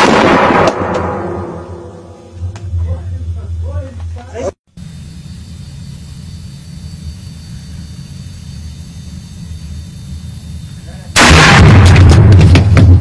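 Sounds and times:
rifle shot: 0:00.0 - 0:01.9, 0:11.2 - 0:13.0
steady low rumble: 0:00.2 - 0:13.0.

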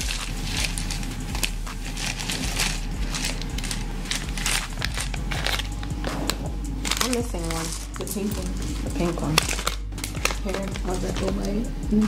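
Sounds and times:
plastic candy bag crinkling: 0:00.0 - 0:11.7.

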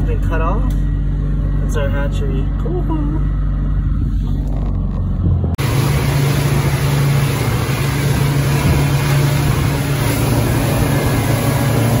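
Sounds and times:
outboard motor running: 0:00.0 - 0:12.0
water rushing over hull: 0:05.6 - 0:12.0.

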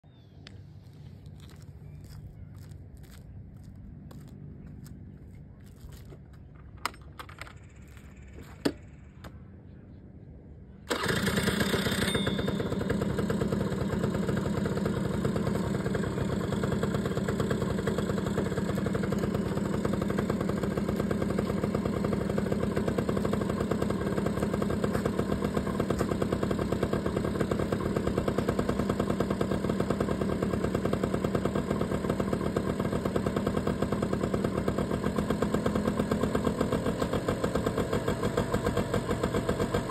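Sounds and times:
minibike engine running: 0:10.9 - 0:39.9.

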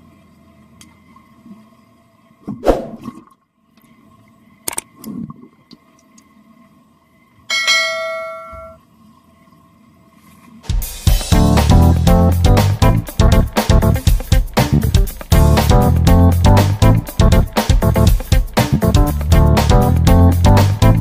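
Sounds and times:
faint steady hum: 0:00.0 - 0:10.7
water whoosh: 0:02.5 - 0:03.3
notification bell ding: 0:07.5 - 0:08.8.

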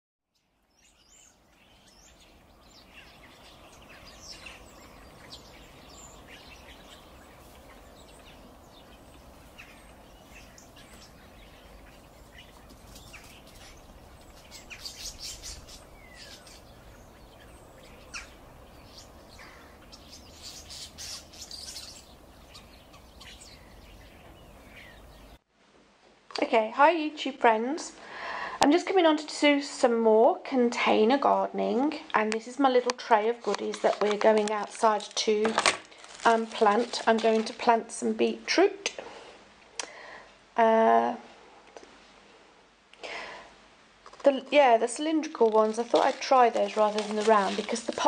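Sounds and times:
birds chirping and singing: 0:00.4 - 0:25.4.

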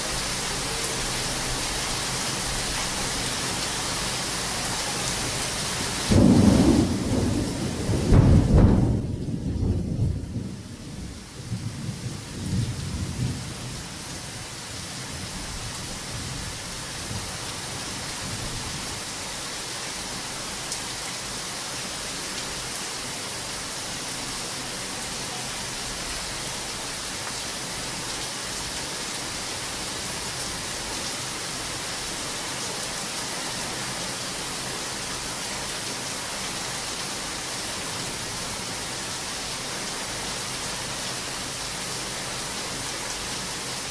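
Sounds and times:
heavy rain falling: 0:00.0 - 0:43.9
thunder rumbling: 0:06.1 - 0:13.6.

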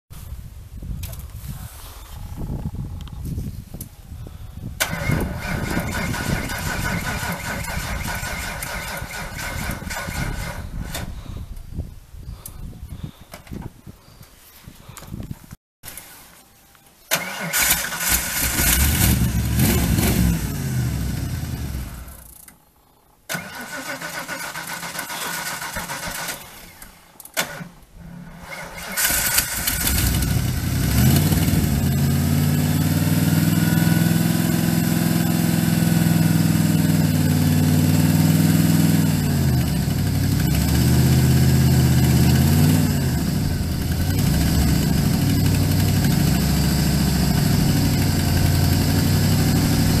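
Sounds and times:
engine cranking: 0:04.8 - 0:11.1, 0:17.1 - 0:22.6, 0:23.3 - 0:32.2
engine running and revving: 0:17.6 - 0:22.2, 0:28.4 - 0:50.0.

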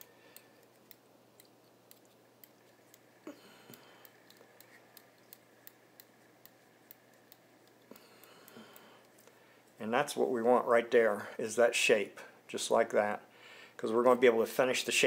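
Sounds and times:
faint ticks: 0:00.0 - 0:09.4.

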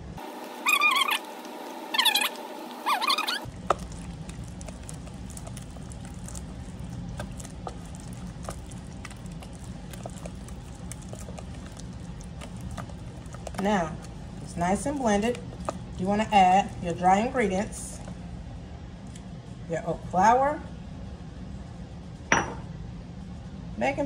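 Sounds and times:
whisk squishing batter: 0:02.9 - 0:18.1
low steady rumble: 0:03.4 - 0:24.0.

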